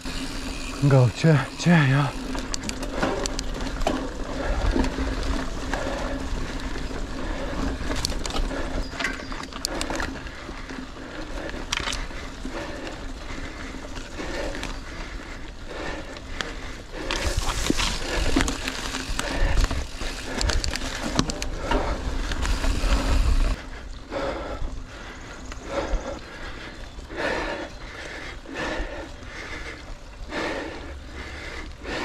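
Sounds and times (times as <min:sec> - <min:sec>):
bike tyres on dirt trail: 0:00.0 - 0:32.0
bike knocks and rattles: 0:17.1 - 0:23.5.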